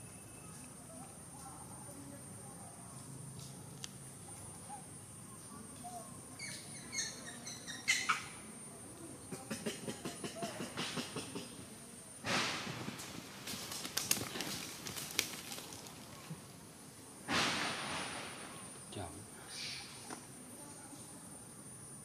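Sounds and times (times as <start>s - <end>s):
high insect whine: 10.0s - 22.0s
monkeys scratching and rustling: 12.7s - 16.5s.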